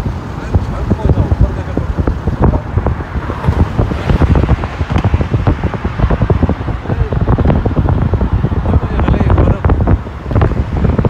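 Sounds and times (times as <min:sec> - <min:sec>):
car road noise: 0:00.0 - 0:11.0
low thumps: 0:00.0 - 0:11.0
wind buffeting microphone: 0:00.0 - 0:11.0.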